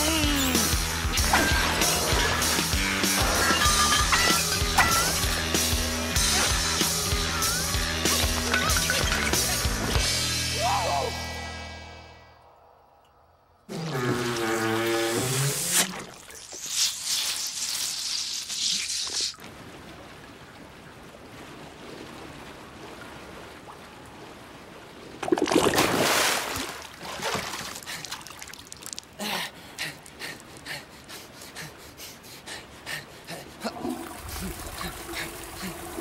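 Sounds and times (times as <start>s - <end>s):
running water: 0.0s - 10.2s, 14.3s - 30.8s, 33.4s - 36.0s
loud splash: 1.0s - 7.0s, 25.2s - 28.9s.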